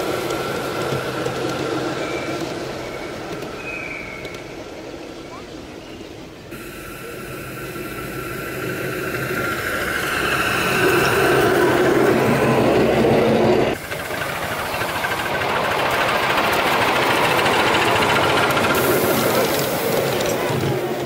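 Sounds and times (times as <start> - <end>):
model steam locomotive passing: 0.0 - 21.0
steady high-pitched squeal: 6.5 - 21.0
steam locomotive rapid even beat: 6.5 - 21.0.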